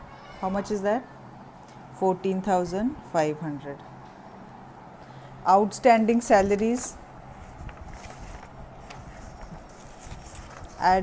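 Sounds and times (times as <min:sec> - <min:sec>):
paper rustling: 0:06.3 - 0:11.0.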